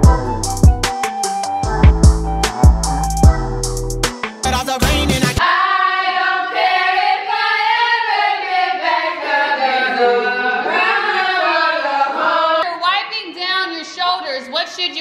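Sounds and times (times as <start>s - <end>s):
women singing together: 5.4s - 12.8s.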